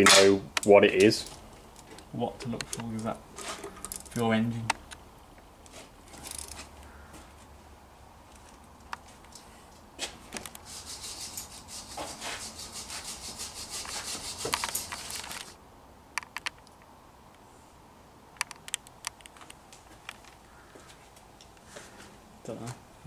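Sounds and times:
scraper rasping on metal: 10.6s - 15.6s.

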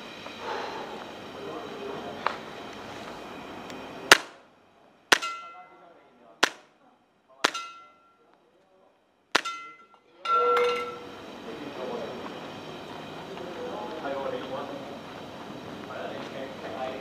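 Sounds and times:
long metallic ringing: 0.0s - 4.1s, 5.1s - 6.2s, 7.4s - 8.3s, 9.4s - 15.7s
airsoft pistol shots: 4.1s - 4.4s, 5.1s - 5.5s, 6.4s - 6.7s, 7.4s - 7.9s, 9.4s - 9.7s.

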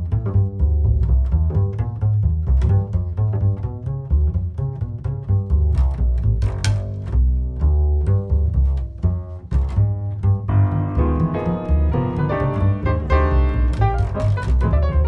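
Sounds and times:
plucked double bass: 0.0s - 15.0s
piano chords: 10.4s - 15.0s.

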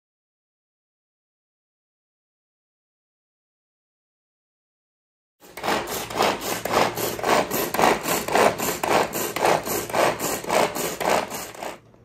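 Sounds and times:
hand food chopper chopping: 5.4s - 11.9s.

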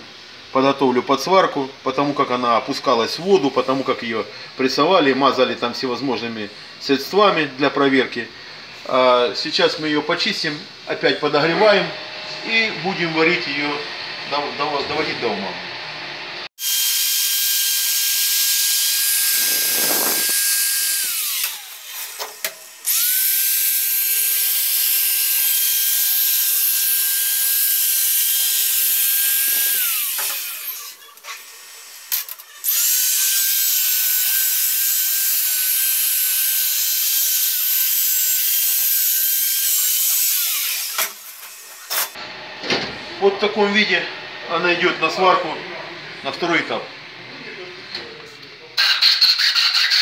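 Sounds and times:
die grinder high whine: 11.0s - 42.6s.

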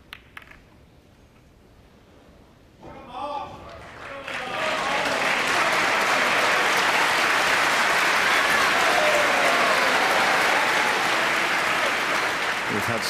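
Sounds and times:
arena audience applauding: 3.6s - 13.0s.

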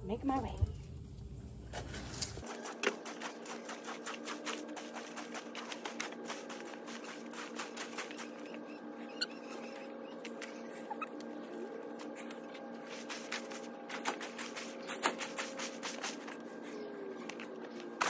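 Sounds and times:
faint steady hum: 0.0s - 2.4s
rake scraping through dry leaves: 1.7s - 8.6s, 12.1s - 16.4s.

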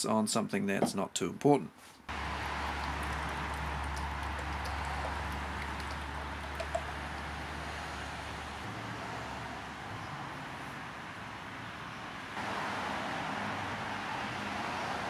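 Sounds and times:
water pouring into plastic tank: 2.1s - 7.6s.

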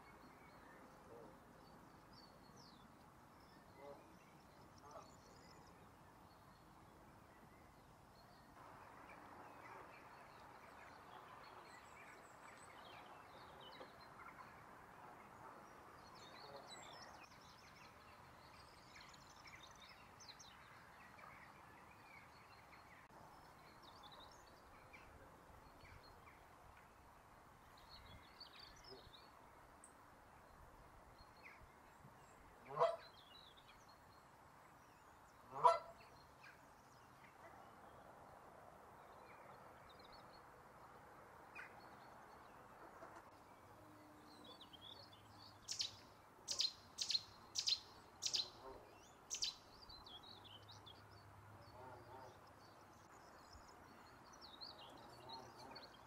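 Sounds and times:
goose honking: 35.5s - 35.9s
small birds chirping: 44.3s - 56.0s.

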